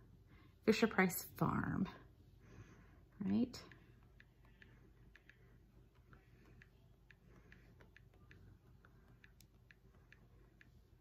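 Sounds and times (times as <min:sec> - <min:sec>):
faint touchscreen typing clicks: 0:03.5 - 0:11.0.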